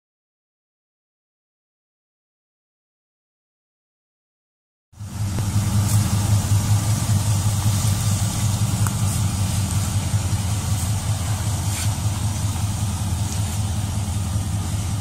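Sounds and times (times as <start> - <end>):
car engine idling: 5.0 - 15.0.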